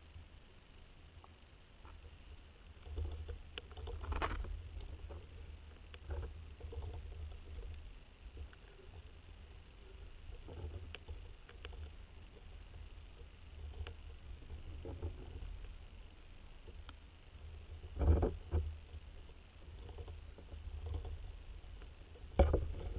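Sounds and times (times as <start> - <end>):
underwater clicks and knocks: 17.8 - 22.9.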